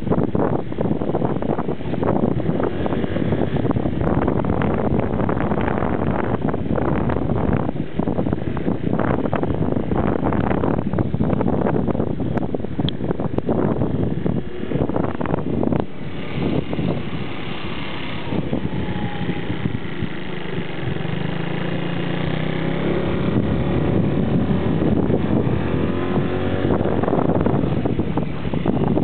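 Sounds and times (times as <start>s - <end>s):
wind buffeting microphone: 0.0s - 29.0s
motorbike engine running: 13.0s - 29.0s.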